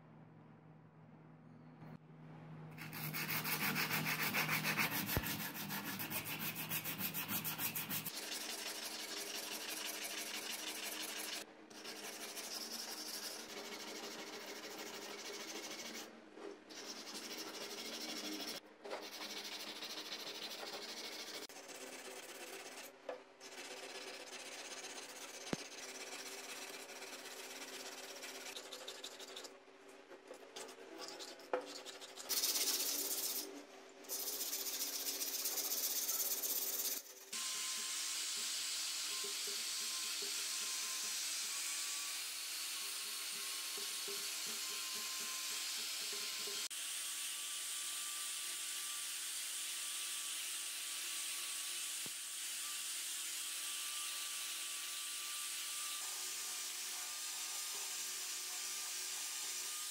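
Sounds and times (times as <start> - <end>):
sanding metal by hand: 2.8 - 16.1, 16.7 - 29.5, 30.6 - 33.5, 34.1 - 37.4.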